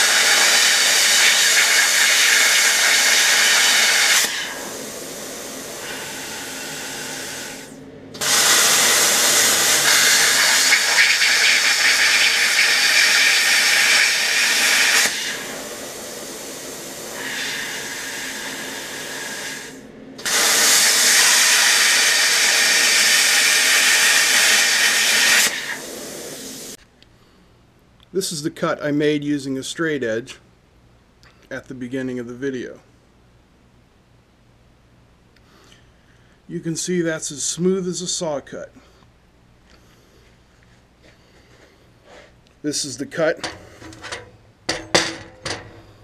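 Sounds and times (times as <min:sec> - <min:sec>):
plasma cutter arc hiss: 0:00.0 - 0:26.8
quiet air hiss: 0:15.2 - 0:20.2, 0:25.9 - 0:46.0.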